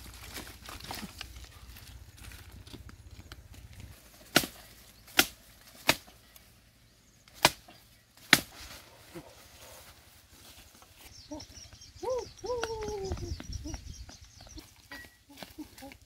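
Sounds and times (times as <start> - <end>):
machete chopping branch: 4.2 - 6.2, 7.3 - 8.8.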